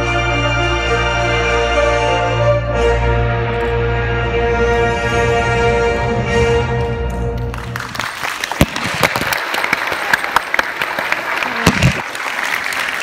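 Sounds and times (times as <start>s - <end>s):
audience applause: 7.1s - 13.0s.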